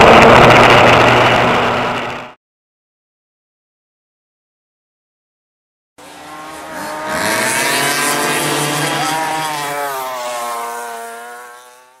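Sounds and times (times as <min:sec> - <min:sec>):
high-revving engine: 0:06.0 - 0:12.0.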